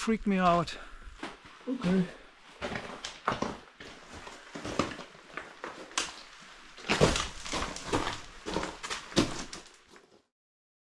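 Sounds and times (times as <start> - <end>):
gear scraping and knocking: 6.8 - 10.0.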